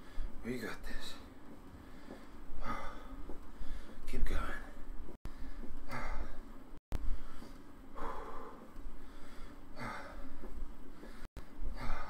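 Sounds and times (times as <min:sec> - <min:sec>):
man breathing hard: 0:01.8 - 0:04.0, 0:05.3 - 0:12.0.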